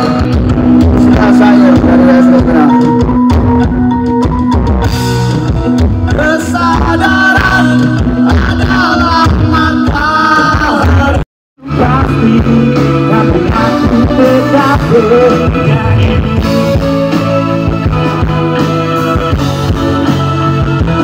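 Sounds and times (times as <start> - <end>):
man singing: 0.0 - 3.0, 6.0 - 19.6
drums: 0.0 - 21.0
electric guitars: 0.0 - 21.0
keyboard: 0.0 - 21.0.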